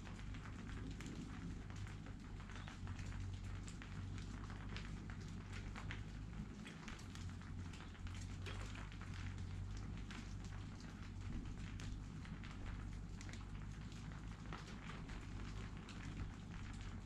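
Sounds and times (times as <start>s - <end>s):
low steady rumble: 0.0s - 17.0s
raindrops ticking: 0.0s - 17.0s.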